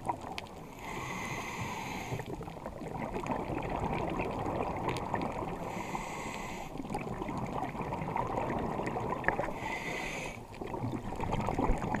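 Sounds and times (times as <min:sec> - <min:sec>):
underwater crackling: 0:00.0 - 0:12.0
scuba regulator breaths: 0:00.6 - 0:02.4, 0:05.6 - 0:06.9, 0:09.4 - 0:10.5.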